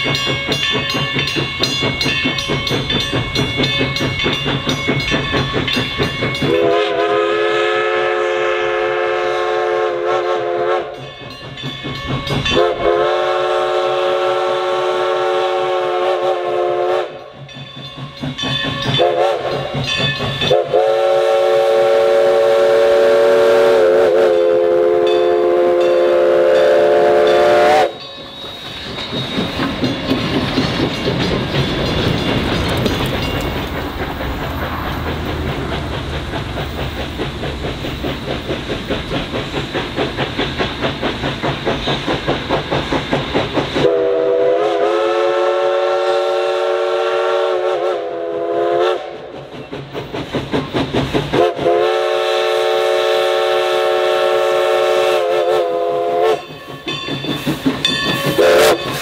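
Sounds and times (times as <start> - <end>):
steam locomotive chuffing: 0.0 - 59.0
steam whistle blast: 6.5 - 11.0, 12.6 - 17.3, 19.0 - 19.6, 20.5 - 28.0, 43.8 - 49.3, 51.4 - 56.6, 58.3 - 59.0.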